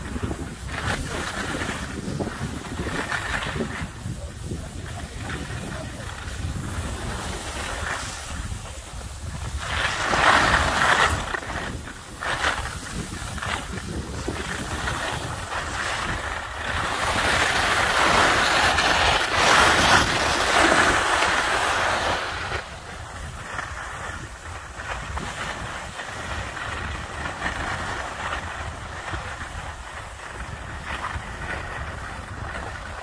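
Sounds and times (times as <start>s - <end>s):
skis scraping over snow: 0.0s - 33.0s
wind buffeting microphone: 0.0s - 33.0s.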